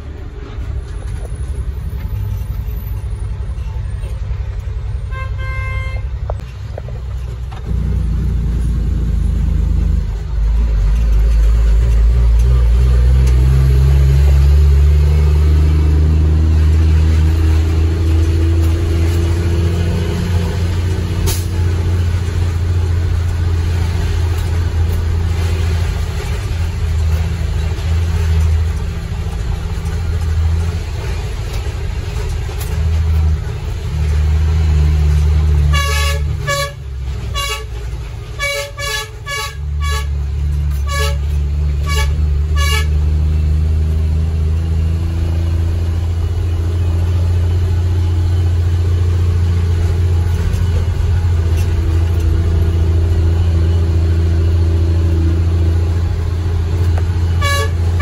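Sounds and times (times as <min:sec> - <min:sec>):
diesel truck engine rumbling: 0:00.0 - 0:58.0
truck horn toots: 0:05.0 - 0:06.2, 0:35.5 - 0:43.1, 0:57.2 - 0:58.0.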